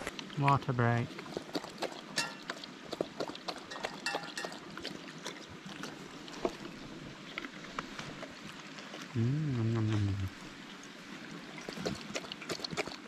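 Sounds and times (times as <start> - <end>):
running water rushing: 0.0 - 13.0
dog lapping water: 1.1 - 6.8, 11.6 - 13.0.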